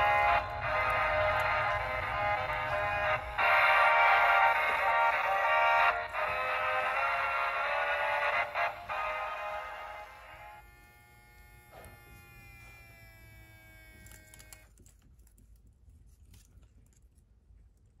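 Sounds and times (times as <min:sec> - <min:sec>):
toy song: 0:00.0 - 0:10.7
small toy motor whirring: 0:00.0 - 0:14.9.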